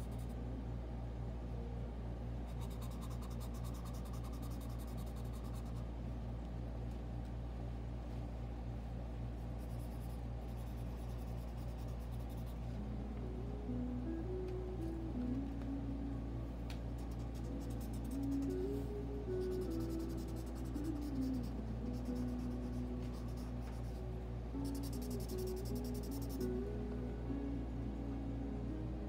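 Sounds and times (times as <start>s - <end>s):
steady low hum: 0.0s - 29.0s
pencil scratching on paper: 2.5s - 5.8s, 24.6s - 26.4s
soft musical notes: 12.7s - 29.0s.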